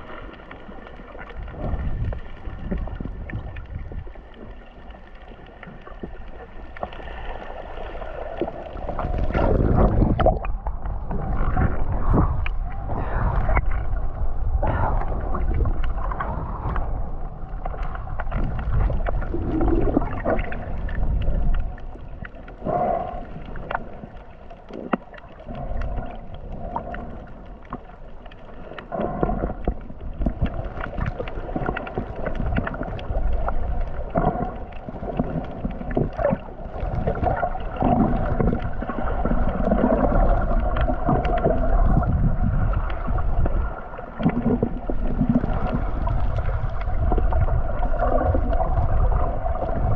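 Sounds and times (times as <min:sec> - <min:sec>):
muffled water sloshing and gurgling: 0:00.0 - 0:49.9
low rumble: 0:01.0 - 0:06.9, 0:08.0 - 0:24.7, 0:25.4 - 0:49.9.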